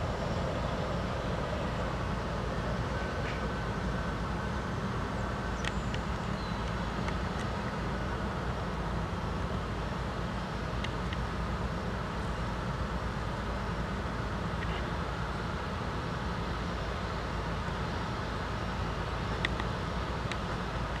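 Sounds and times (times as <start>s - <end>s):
jet engines rumbling: 0.0s - 21.0s
faint clicks: 19.4s - 21.0s.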